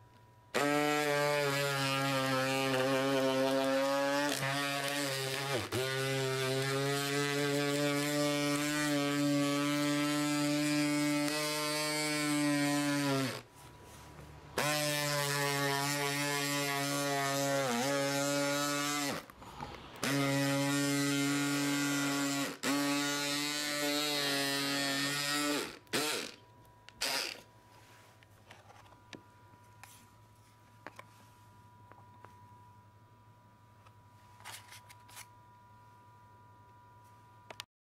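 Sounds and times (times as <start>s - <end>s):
electric scissors motor buzzing: 0.5s - 13.5s, 14.6s - 19.3s, 20.0s - 26.4s, 27.0s - 27.5s
blade cutting plastic sheet: 0.6s - 13.5s, 14.6s - 19.3s, 20.0s - 26.4s.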